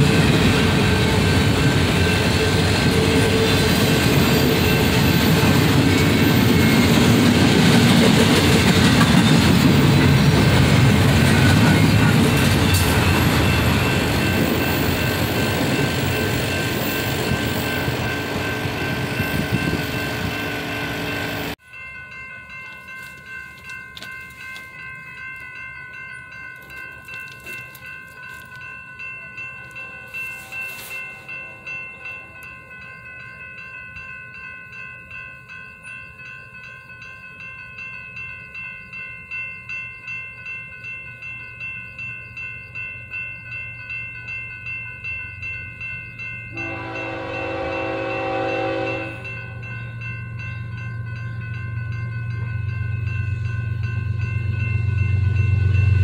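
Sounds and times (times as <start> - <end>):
train rumble: 0.0 - 21.6, 43.8 - 56.0
crossing bell ringing: 0.0 - 56.0
locomotive horn blast: 46.5 - 49.4.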